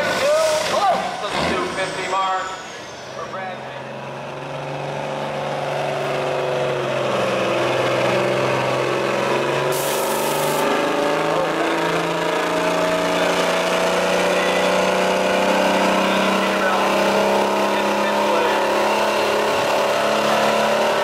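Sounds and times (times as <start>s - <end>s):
truck diesel engine revving: 0.0s - 21.0s
short air hiss: 9.7s - 10.6s.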